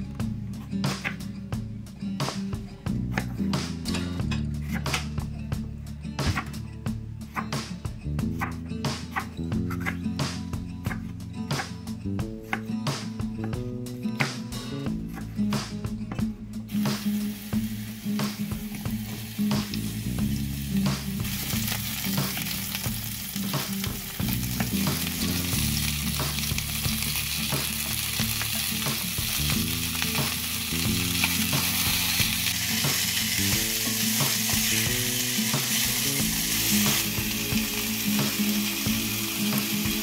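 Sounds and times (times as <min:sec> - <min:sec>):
vegetables sizzling in a pan: 0:16.7 - 0:40.0.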